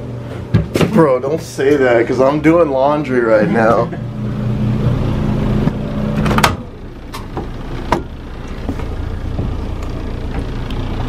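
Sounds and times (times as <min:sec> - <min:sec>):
clothes dryer humming: 0:00.0 - 0:11.0.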